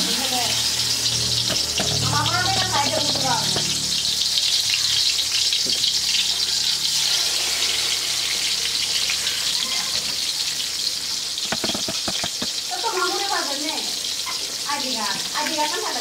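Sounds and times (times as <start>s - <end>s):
fish frying in hot oil: 0.0s - 16.0s
sharp taps: 11.5s - 12.6s.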